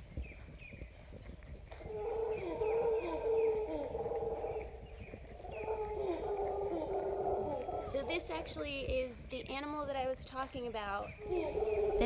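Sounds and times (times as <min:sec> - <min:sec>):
howler monkeys howling: 0:01.8 - 0:08.8, 0:11.1 - 0:12.0
bird chirping: 0:01.8 - 0:09.0, 0:10.6 - 0:12.0.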